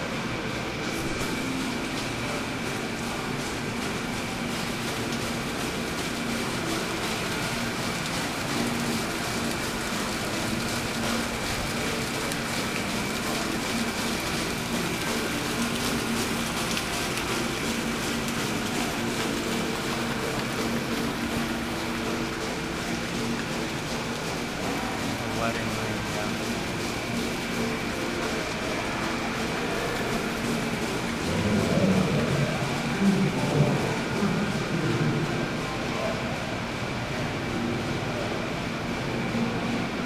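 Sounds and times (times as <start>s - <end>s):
indoor hall hubbub: 0.0s - 40.0s
water running over water wheel: 0.0s - 40.0s.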